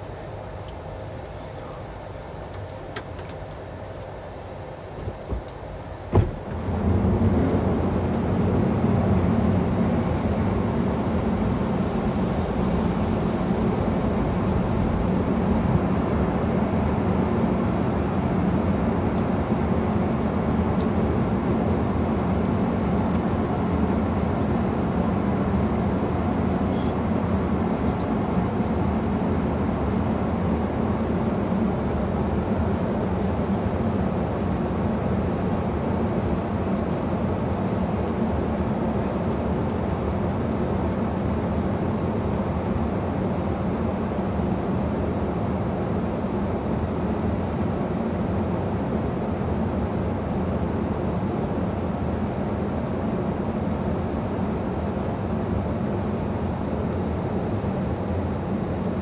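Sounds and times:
wheels thudding on runway: 6.1 - 6.9
reverse thrust roar: 6.5 - 10.0.

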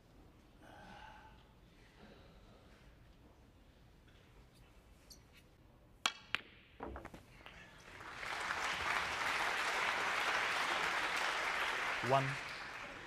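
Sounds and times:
ball dropping into pocket: 6.0 - 7.6
snooker balls clicking: 6.0 - 7.6
audience applause: 7.8 - 13.0.

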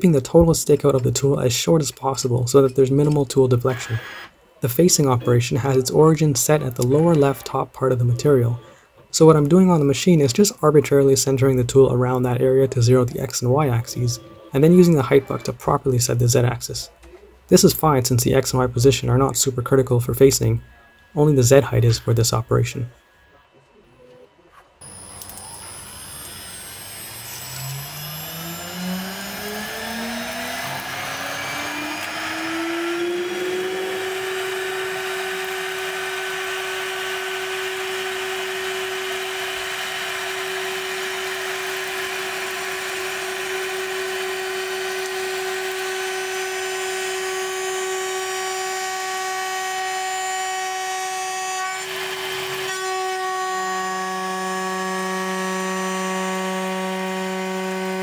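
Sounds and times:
milling spindle whine: 17.6 - 58.0
low hum: 18.4 - 49.8.

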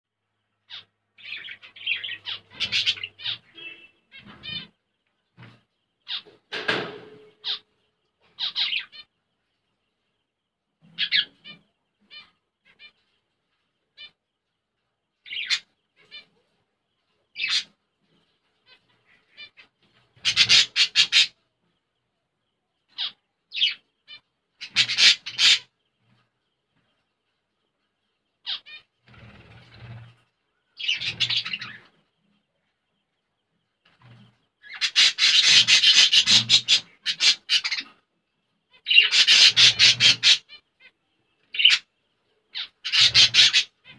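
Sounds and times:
nestlings chirping: 0.6 - 6.5, 7.2 - 13.1, 14.0 - 27.3, 28.0 - 43.9.

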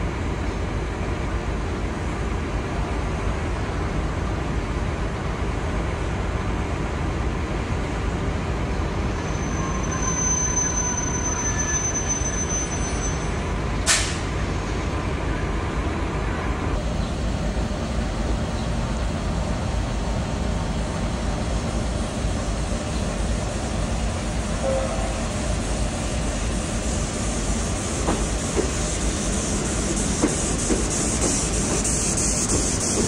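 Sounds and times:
sharp click or hiss: 13.9 - 14.3.

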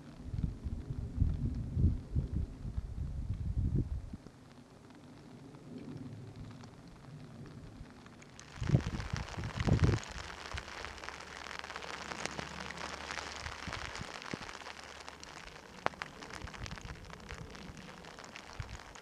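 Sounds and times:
heavy rain falling: 4.4 - 19.0.

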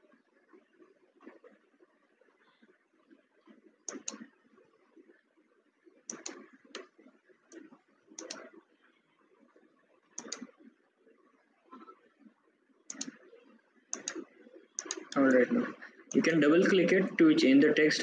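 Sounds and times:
computer mouse clicking: 3.8 - 4.3, 6.1 - 8.6, 10.1 - 10.6, 12.9 - 15.2.

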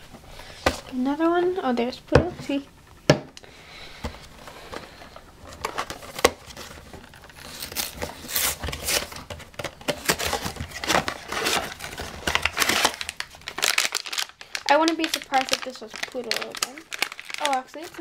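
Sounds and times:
packaging crinkling and tearing: 4.6 - 18.0.

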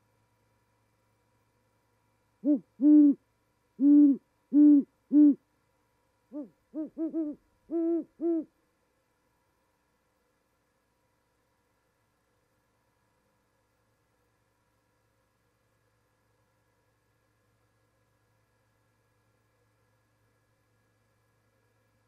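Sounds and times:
owl deep hoots: 2.4 - 3.2, 3.8 - 5.4, 6.3 - 8.5
owl higher quicker hoots: 6.3 - 8.5.

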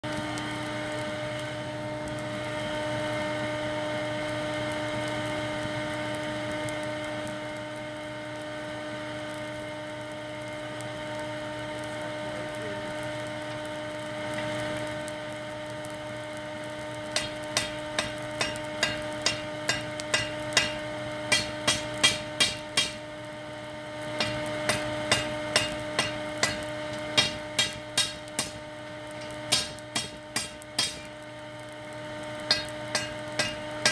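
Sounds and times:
steady hum: 0.0 - 33.9
hammer striking steel on anvil: 17.2 - 23.0, 24.2 - 31.2, 32.4 - 33.9.

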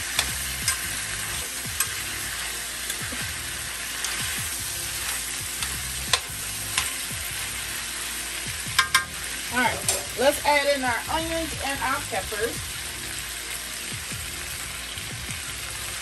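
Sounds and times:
food sizzling in oil: 0.0 - 16.0
metal spoon scraping pan: 3.9 - 4.4, 8.8 - 10.4.

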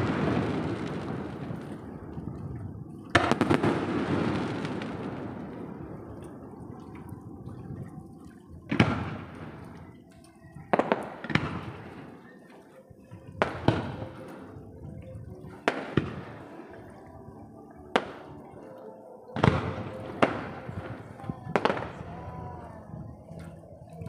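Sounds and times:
fireworks bangs with rolling echo: 0.0 - 2.0, 3.1 - 6.5, 10.7 - 12.2, 13.4 - 14.4, 15.6 - 16.4.

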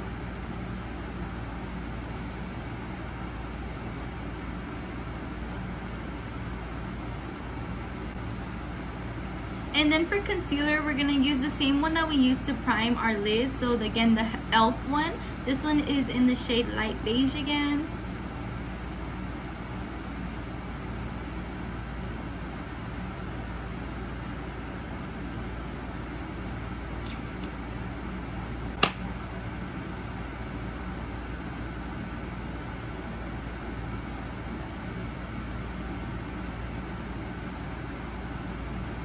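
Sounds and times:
air conditioner humming: 0.0 - 39.0
sharp click: 27.0 - 27.6.

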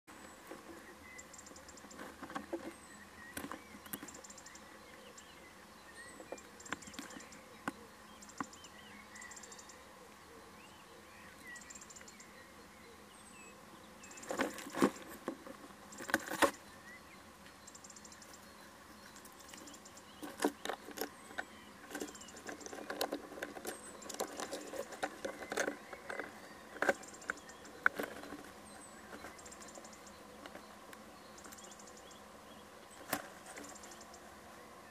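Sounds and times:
faint high chirping pulses: 0.1 - 34.9
owl rustling in nest box: 0.2 - 4.2, 14.2 - 16.6, 18.3 - 31.6, 32.9 - 34.0.

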